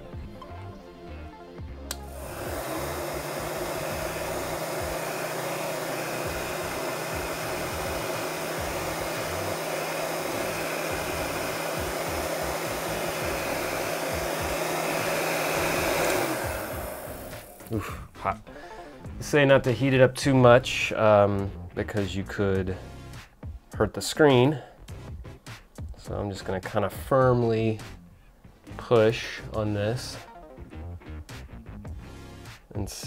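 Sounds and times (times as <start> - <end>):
heat gun blowing air: 1.9 - 17.8.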